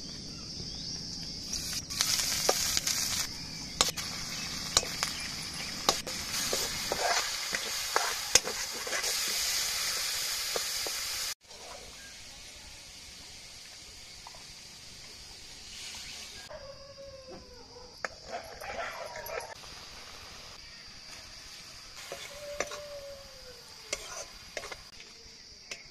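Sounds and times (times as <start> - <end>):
onions sizzling in hot oil: 1.4 - 16.5, 19.6 - 25.1
metal spoon scraping a pan: 5.8 - 11.8, 23.9 - 24.9.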